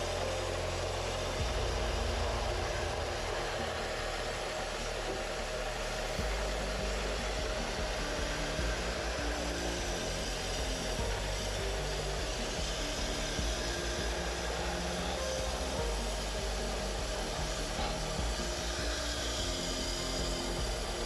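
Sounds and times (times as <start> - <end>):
low machine hum: 0.0 - 21.0.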